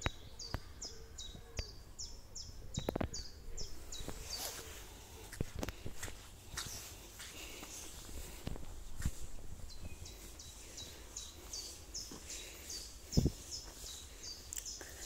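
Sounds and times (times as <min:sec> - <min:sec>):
songbird singing: 0:00.0 - 0:15.0
footfalls on a dirt path: 0:04.0 - 0:14.2.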